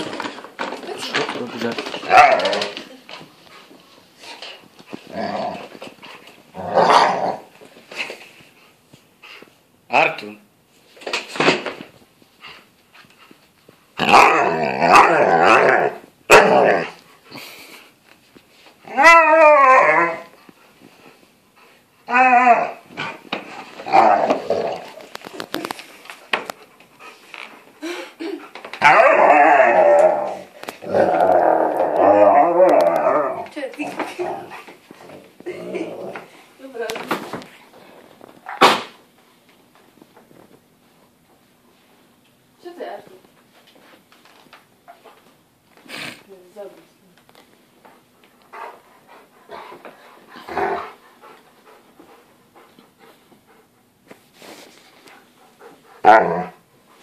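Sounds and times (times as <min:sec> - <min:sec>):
dog growling: 0:01.6 - 0:02.8, 0:04.3 - 0:07.5, 0:14.0 - 0:17.4, 0:23.8 - 0:25.1, 0:28.8 - 0:34.7, 0:35.4 - 0:36.3, 0:50.3 - 0:51.0, 0:55.6 - 0:56.6.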